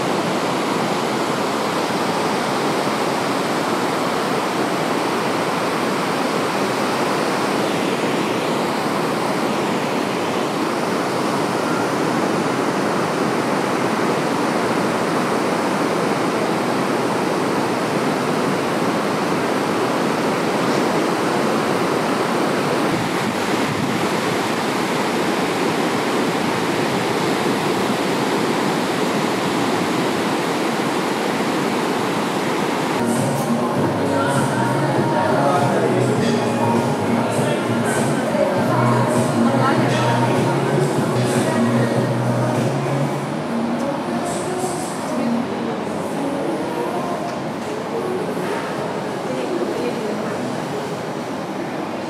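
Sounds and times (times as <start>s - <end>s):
sea waves breaking on beach: 0.0s - 33.0s.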